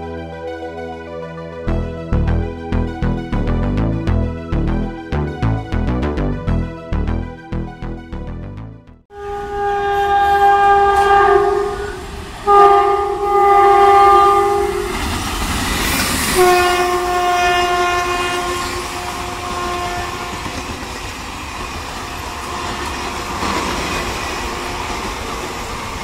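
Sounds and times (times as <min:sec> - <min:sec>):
locomotive air horn blasts: 0:09.1 - 0:15.0, 0:16.3 - 0:20.6
rush of passing train: 0:09.2 - 0:26.0
train wheel clatter: 0:20.1 - 0:26.0.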